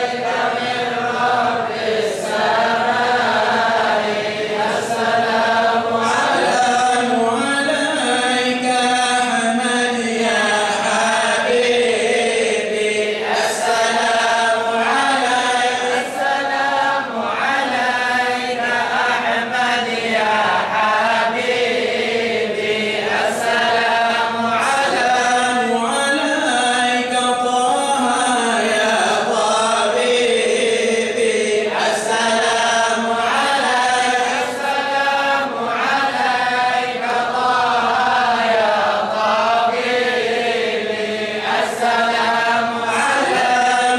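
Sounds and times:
group of men chanting: 0:00.0 - 0:43.9.

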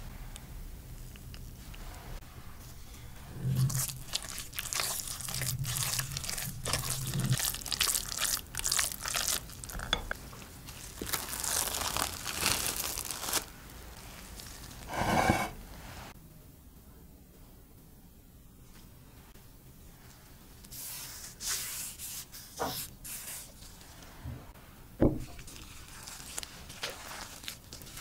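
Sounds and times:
wooden spoon mixing wet meat: 0:02.6 - 0:12.0, 0:25.4 - 0:28.0.

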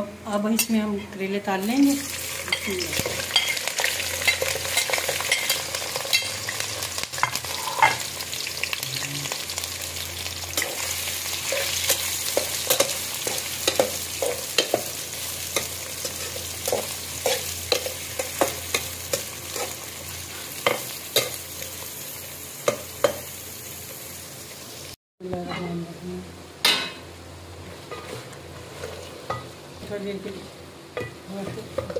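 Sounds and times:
vegetables sizzling in a pan: 0:00.0 - 0:25.0, 0:26.4 - 0:31.9
spatula scraping a pan: 0:27.8 - 0:29.5.

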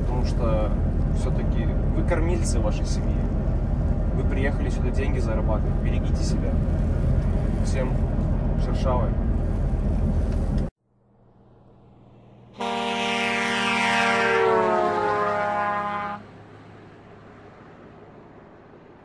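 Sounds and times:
truck cab road noise: 0:00.0 - 0:19.0
horn-like chord: 0:12.6 - 0:16.2.

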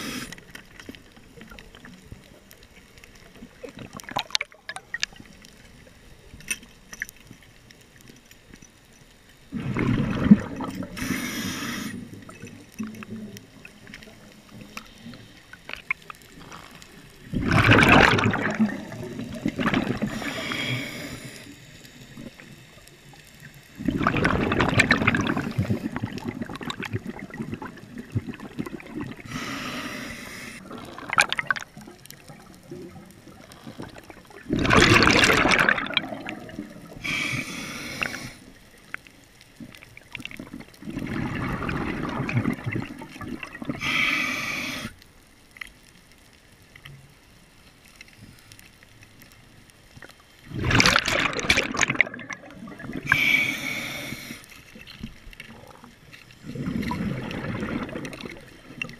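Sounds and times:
diver breathing through regulator: 0:00.0 - 0:00.5, 0:10.8 - 0:12.1, 0:20.0 - 0:21.6, 0:29.2 - 0:30.8, 0:37.0 - 0:38.6, 0:43.7 - 0:45.0, 0:52.9 - 0:54.6
faint clicks and hiss: 0:00.0 - 0:58.9
bubbles gurgling: 0:03.2 - 0:05.3, 0:09.5 - 0:11.2, 0:15.8 - 0:20.7, 0:23.8 - 0:29.4, 0:30.6 - 0:37.3, 0:39.6 - 0:43.9, 0:50.4 - 0:53.8, 0:54.8 - 0:58.9.

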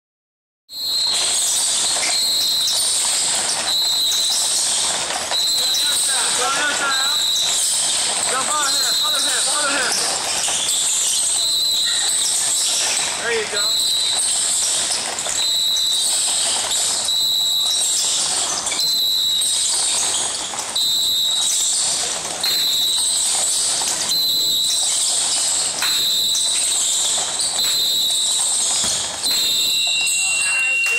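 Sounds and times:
basketballs bouncing on court: 0:00.7 - 0:30.9
players' voices: 0:05.4 - 0:07.3, 0:08.1 - 0:10.3, 0:13.0 - 0:13.8, 0:29.9 - 0:30.9
high tone: 0:29.2 - 0:30.9.

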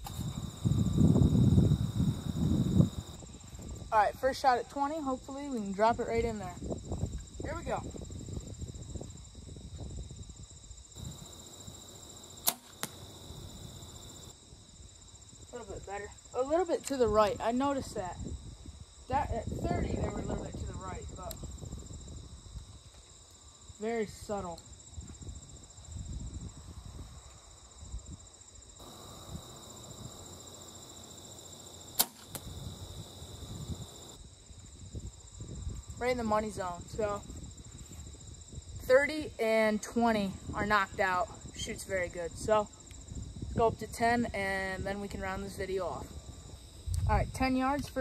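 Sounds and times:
bow release crack: 0:00.0 - 0:00.4, 0:12.4 - 0:13.1, 0:31.9 - 0:32.6
crickets chirping: 0:00.0 - 0:48.0
arrow striking target: 0:12.4 - 0:13.0, 0:31.9 - 0:32.5.

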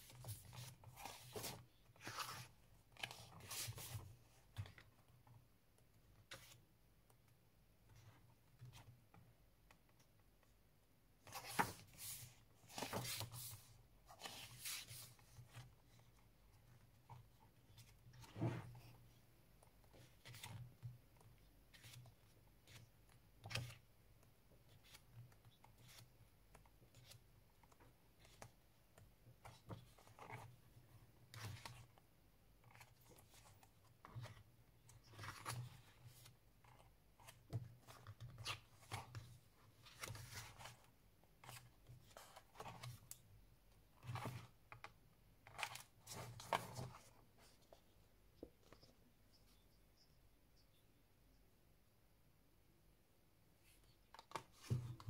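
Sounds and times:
book pages turning: 0:00.1 - 0:04.0, 0:11.2 - 0:16.0, 0:32.6 - 0:43.2.

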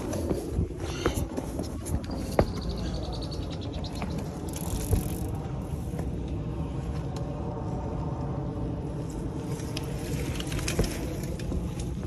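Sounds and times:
footsteps on concrete: 0:00.0 - 0:03.2
steady low rumble: 0:00.0 - 0:12.0
gear handling noise: 0:03.9 - 0:07.2, 0:09.1 - 0:12.0.

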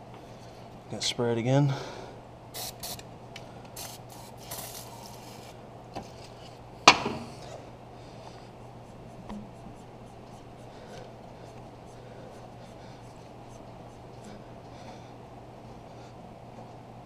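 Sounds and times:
aerosol spray hissing: 0:02.6 - 0:03.0, 0:03.8 - 0:05.5.

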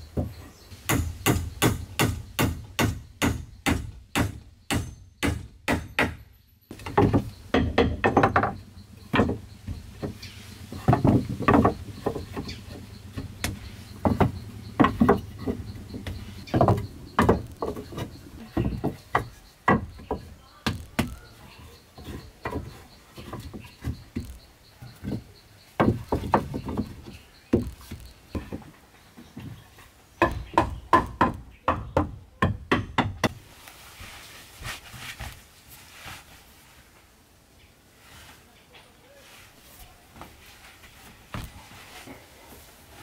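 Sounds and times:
tool striking wood: 0:00.2 - 0:21.3, 0:30.2 - 0:33.4.

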